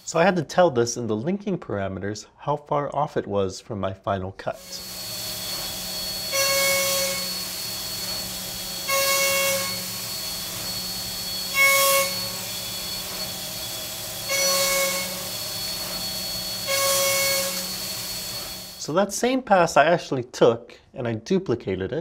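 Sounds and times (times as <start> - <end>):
milling cutter cutting metal: 4.6 - 18.8
spindle whine: 4.6 - 19.0.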